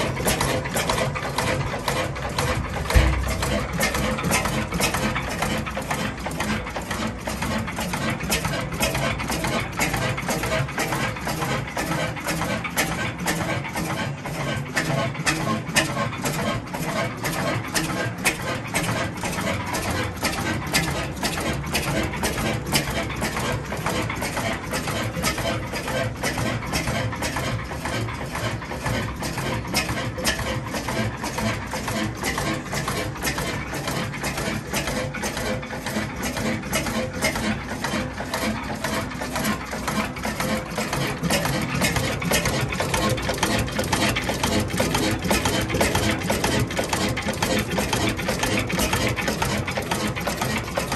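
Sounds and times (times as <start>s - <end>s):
stationary engine clattering: 0.0s - 50.9s.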